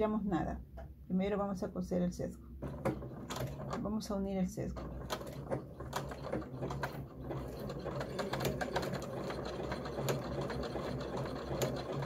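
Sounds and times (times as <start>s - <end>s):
sewing machine running: 2.6s - 12.0s.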